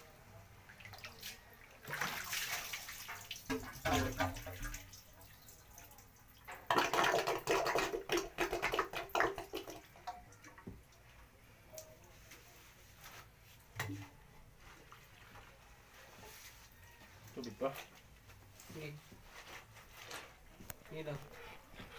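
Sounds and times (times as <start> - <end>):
water splashing and draining in toilet: 1.8 - 10.1.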